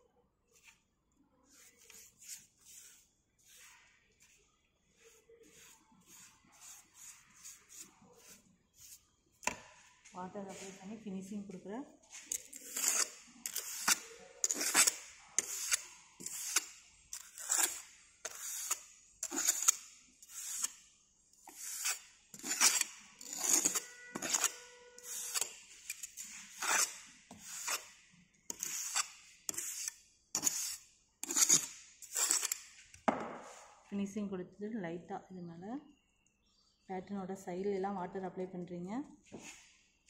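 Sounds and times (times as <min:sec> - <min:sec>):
tool scraping damp sand: 0:21.5 - 0:32.6.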